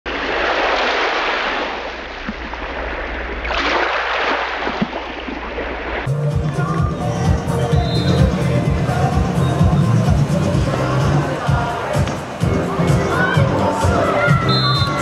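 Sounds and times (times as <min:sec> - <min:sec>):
waves washing onto beach: 0:00.1 - 0:06.1
music with a beat: 0:06.1 - 0:15.0.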